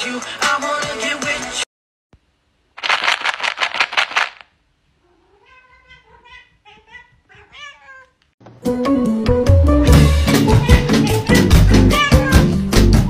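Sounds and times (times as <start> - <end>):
loud rattling burst: 2.8 - 4.5
cat meowing: 5.0 - 8.2, 10.5 - 12.5.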